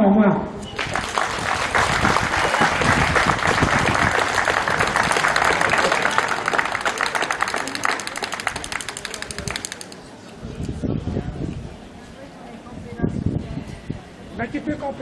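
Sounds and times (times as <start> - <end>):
crowd applauding: 0.7 - 10.0.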